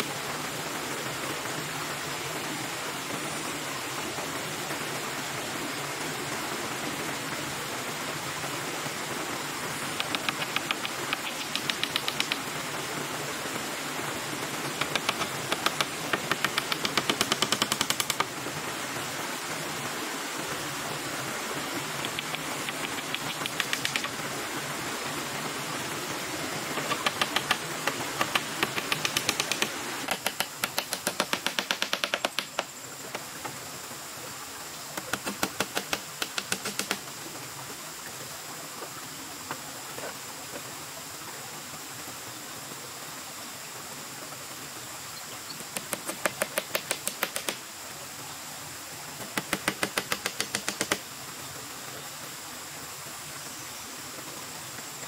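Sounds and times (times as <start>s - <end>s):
steady hiss: 0.0s - 55.0s
hammer tapping nails into bamboo: 10.0s - 12.4s, 14.8s - 18.3s, 22.0s - 24.1s, 26.8s - 32.7s, 35.0s - 37.0s, 45.7s - 47.6s, 49.2s - 51.0s.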